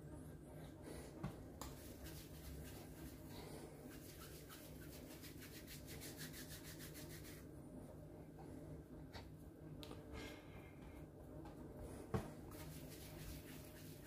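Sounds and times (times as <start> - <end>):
palms rubbing dough: 0.3 - 7.5, 11.8 - 14.0.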